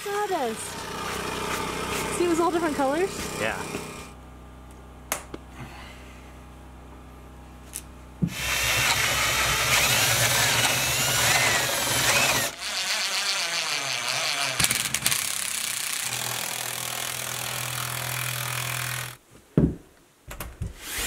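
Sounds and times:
power sander sanding wood: 0.1s - 4.1s, 8.3s - 14.6s
power drill boring into wood: 0.4s - 4.1s, 8.3s - 19.2s.

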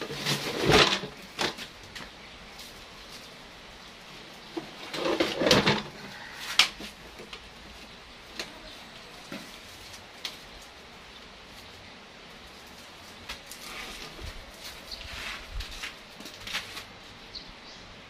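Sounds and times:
scraping and rustling: 0.0s - 10.8s, 11.4s - 17.2s.

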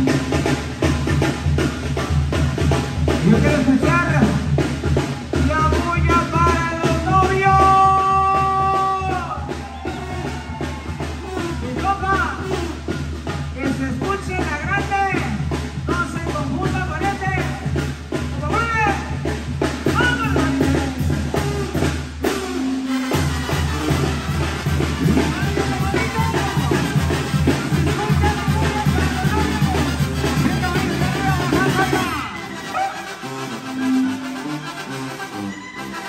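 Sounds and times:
tuba bass line: 0.0s - 9.6s, 17.6s - 36.0s
bass drum: 0.0s - 32.4s
brass band playing: 0.0s - 36.0s.

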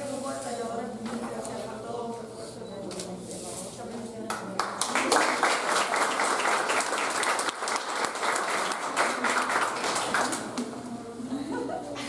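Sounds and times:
crowd applauding: 4.6s - 10.6s.

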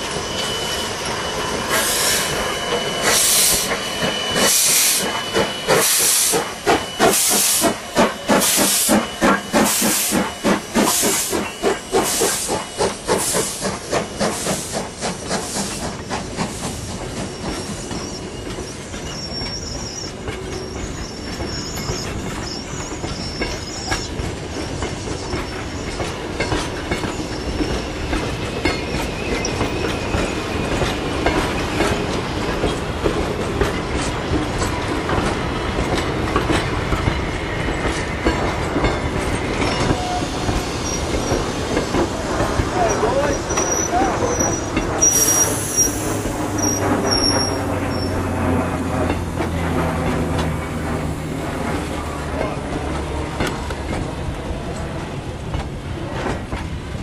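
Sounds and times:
steam locomotive exhaust chuffs: 0.0s - 55.0s
carriages rolling past: 46.4s - 57.0s.

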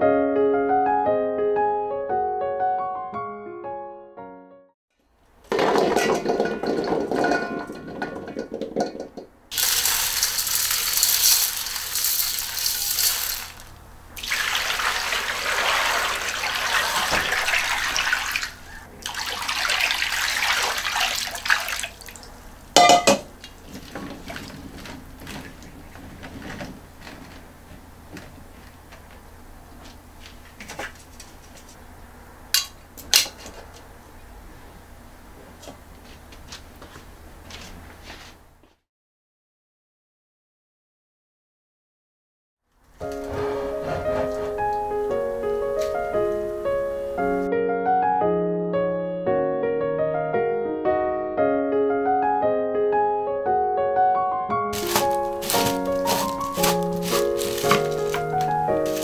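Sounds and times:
plums tumbling into steel bowl: 5.4s - 13.6s, 22.8s - 28.3s, 43.0s - 44.9s, 54.8s - 59.0s
steel bowl clank: 5.5s - 13.6s, 22.8s - 23.3s
water pouring: 5.5s - 26.0s, 54.8s - 59.0s
water sloshing: 14.2s - 27.4s, 54.8s - 59.0s.

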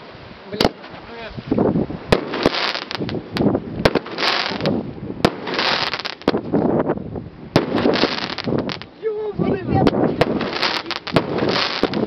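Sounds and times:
fireworks crackling: 0.0s - 12.0s
firework shells bursting: 2.1s - 6.7s, 7.5s - 9.0s, 9.8s - 12.0s.

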